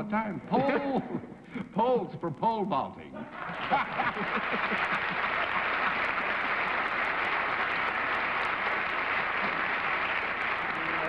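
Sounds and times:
studio audience applauding: 3.4 - 11.0.

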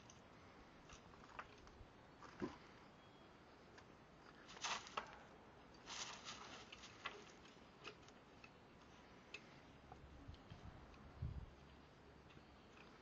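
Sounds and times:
puppy scrabbling in gravel: 4.4 - 5.2, 5.8 - 7.4.

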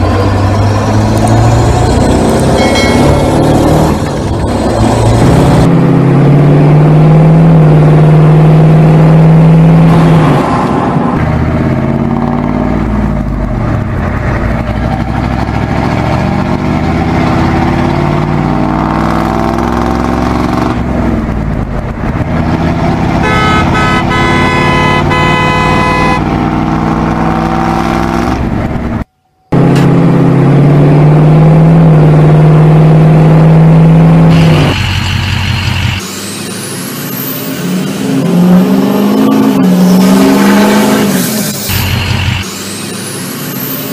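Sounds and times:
truck engine running: 0.0 - 6.0, 19.6 - 32.7, 33.6 - 38.1, 41.3 - 43.9
low truck horn blast: 23.0 - 26.5
higher horn toot: 23.2 - 26.4.

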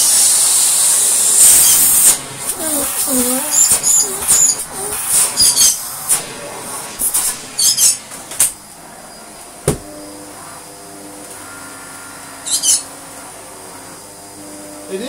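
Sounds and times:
vacuum cleaner running on a rug: 0.0 - 15.0
knock: 9.6 - 9.9
bird chirping: 12.4 - 12.9.

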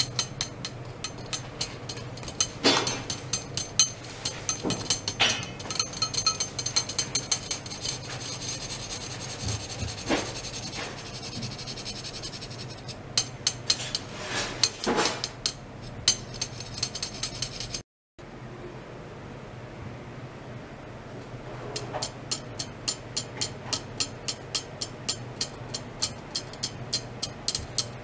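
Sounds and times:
steel rods clicking and rasping: 0.0 - 17.8, 21.8 - 28.0.

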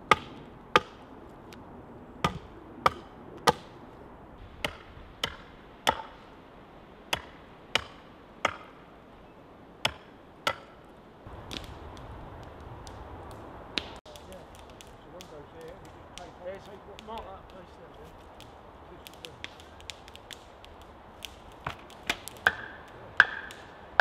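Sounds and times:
hand tool striking wood: 21.6 - 23.7.

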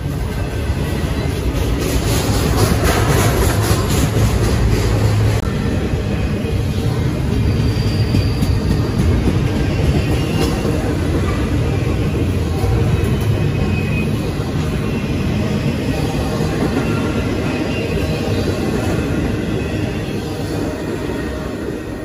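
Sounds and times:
freight train rolling past: 0.0 - 22.0.

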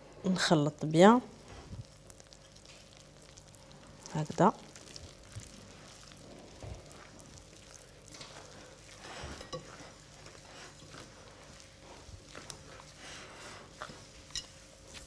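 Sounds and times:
hands rubbing flour in bowl: 4.8 - 15.0.

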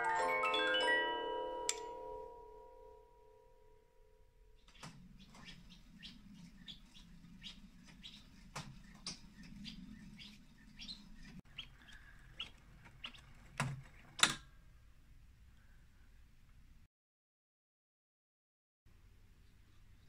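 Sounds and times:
clockwork whir: 4.7 - 11.4.

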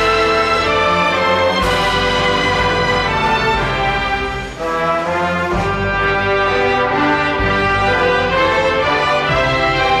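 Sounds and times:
brass-led orchestral music: 0.0 - 10.0.

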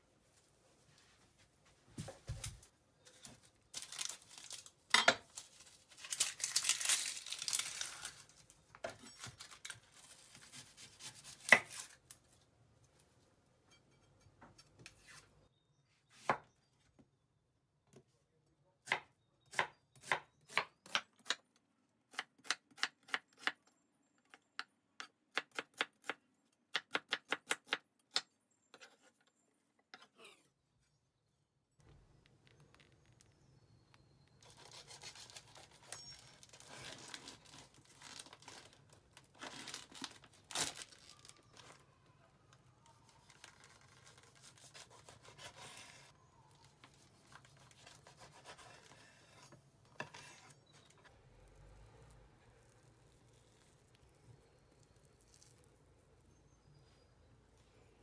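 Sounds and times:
rustling and handling noise: 0.0 - 13.4, 31.8 - 57.9.

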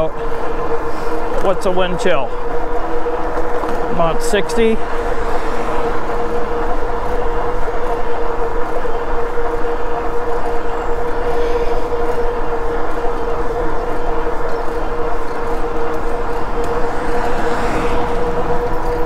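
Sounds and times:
electric bike motor hum: 0.0 - 19.0
wind rushing over microphone: 2.5 - 8.6, 14.6 - 19.0.

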